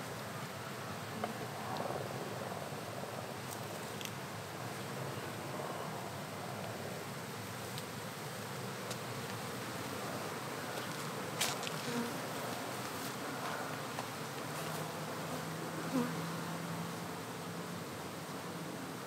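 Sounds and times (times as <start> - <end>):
bees buzzing: 7.1 - 19.0.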